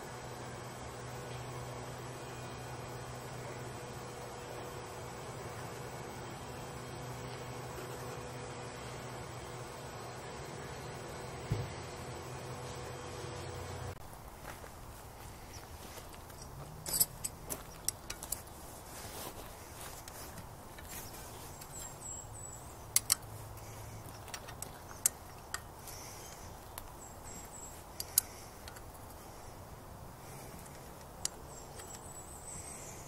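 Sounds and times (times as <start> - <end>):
wrench clinking on metal: 16.3 - 18.4.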